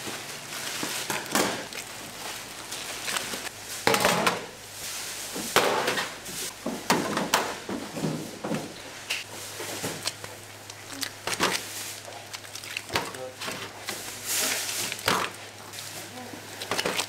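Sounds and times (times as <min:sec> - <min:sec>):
kitchen knocks and clatter: 0:05.4 - 0:08.8.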